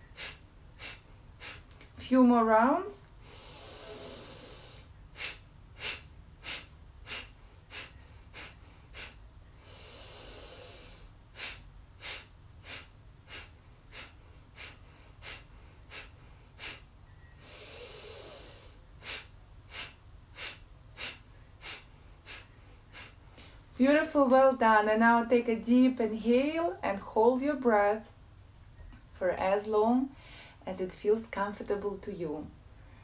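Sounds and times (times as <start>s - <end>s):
woman inhaling through nose: 0.0s - 1.7s, 3.2s - 23.6s
sharp nasal exhalations: 0.0s - 1.8s, 3.2s - 23.6s.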